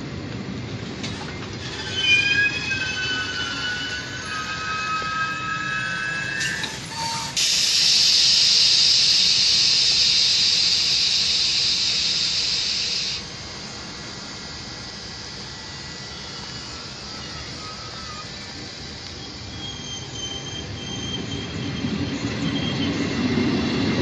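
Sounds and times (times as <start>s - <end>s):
train brakes squealing: 0.9s - 24.0s
compressed air hissing: 6.2s - 20.2s.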